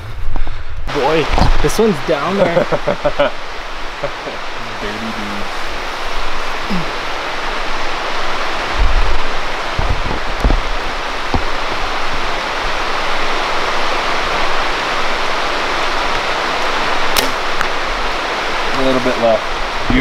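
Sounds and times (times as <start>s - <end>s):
wind buffeting microphone: 5.4s - 18.7s, 19.5s - 20.0s
low thumps: 8.7s - 11.9s
bow shot snap: 17.1s - 17.5s.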